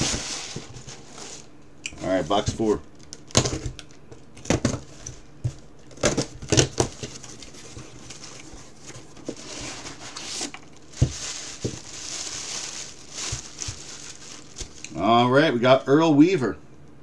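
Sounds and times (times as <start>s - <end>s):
plastic packing crinkling: 5.8s - 15.0s.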